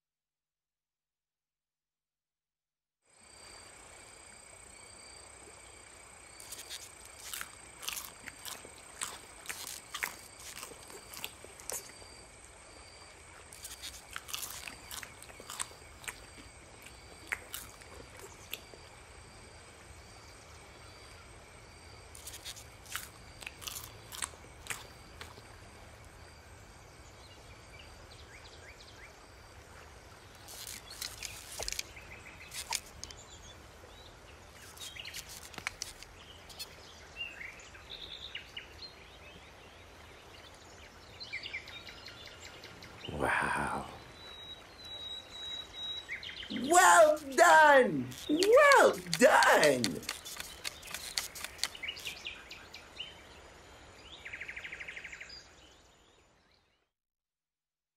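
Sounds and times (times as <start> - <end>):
short crunches: 6.4 - 11.9, 13.6 - 16.4, 22.2 - 25.4, 30.5 - 31.9, 32.5 - 33.1, 34.6 - 36.7, 46.7 - 52.1
small bird chirps: 34.6 - 36.8, 49.9 - 52.7.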